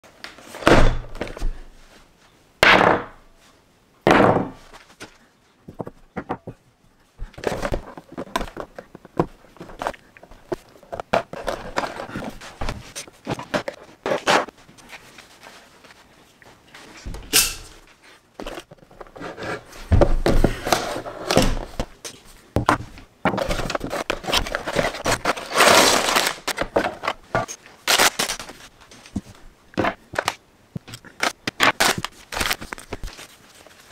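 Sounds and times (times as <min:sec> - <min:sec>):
plastic bags crinkling: 0:23.7 - 0:27.2.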